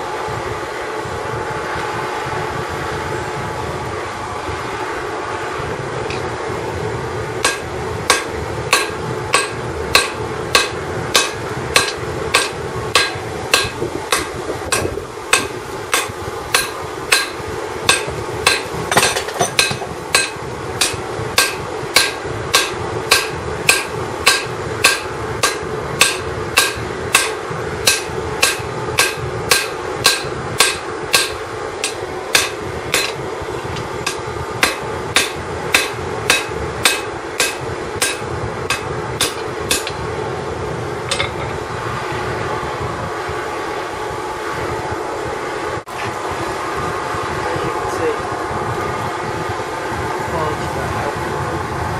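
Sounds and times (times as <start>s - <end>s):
steady rushing noise: 0.0s - 51.9s
hammer striking steel on anvil: 7.4s - 33.2s, 34.0s - 40.0s.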